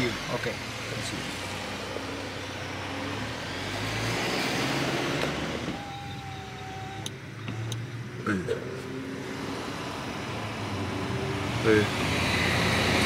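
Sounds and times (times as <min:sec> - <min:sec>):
motor vehicle running: 0:00.0 - 0:13.0
steady high tone: 0:05.7 - 0:07.1.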